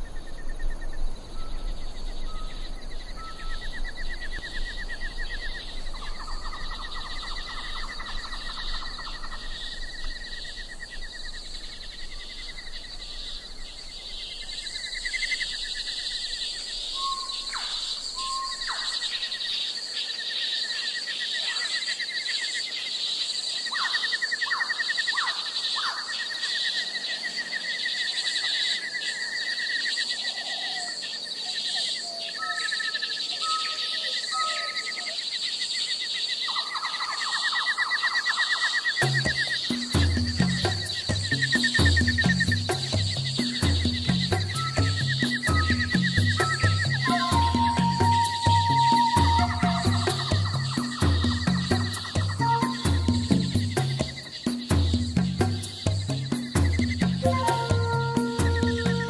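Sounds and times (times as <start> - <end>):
high insect chorus: 0.0 - 59.0
bird whistles: 1.4 - 9.9, 15.0 - 19.7, 32.2 - 35.2, 36.5 - 54.3, 55.6 - 59.0
fast trilling calls: 2.2 - 19.8, 36.4 - 59.0
quick chirps: 38.8 - 59.0.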